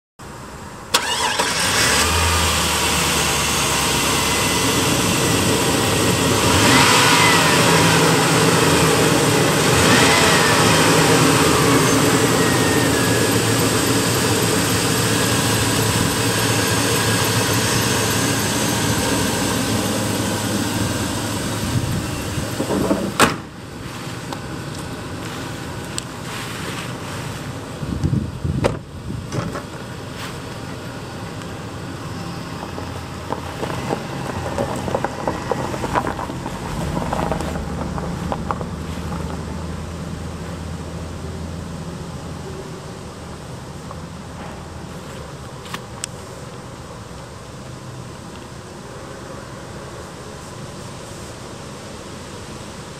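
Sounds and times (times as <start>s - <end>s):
engine running and revving: 1.0s - 23.2s, 32.0s - 41.0s.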